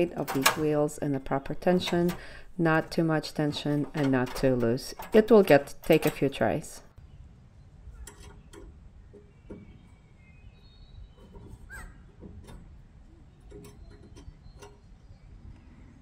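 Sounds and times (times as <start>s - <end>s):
faint metal clicks and taps: 13.4s - 14.8s.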